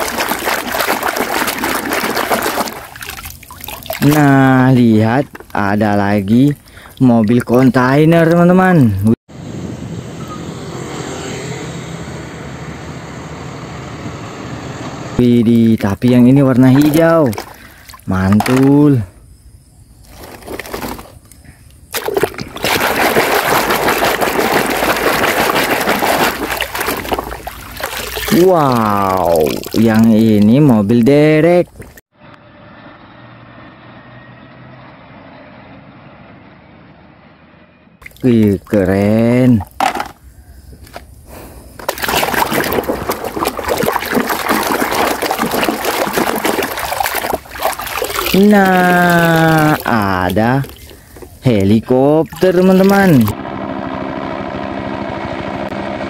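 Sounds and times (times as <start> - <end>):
hand splashing water in basin: 0.0 - 8.4, 15.5 - 19.0, 21.9 - 31.1, 41.8 - 51.4, 52.2 - 53.3.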